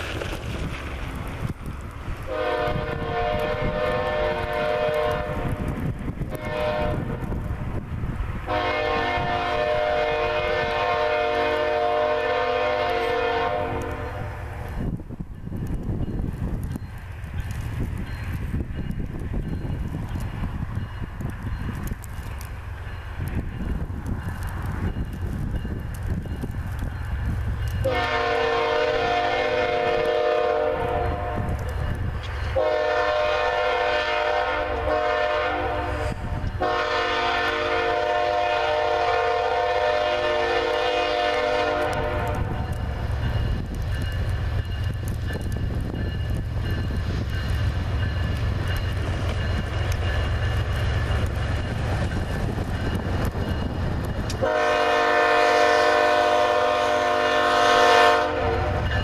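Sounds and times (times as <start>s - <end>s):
locomotive and train rumbling: 0.0s - 59.0s
locomotive air horn blasts: 2.3s - 5.7s, 6.3s - 7.2s, 8.5s - 14.5s, 27.8s - 31.7s, 32.5s - 42.8s, 54.4s - 59.0s.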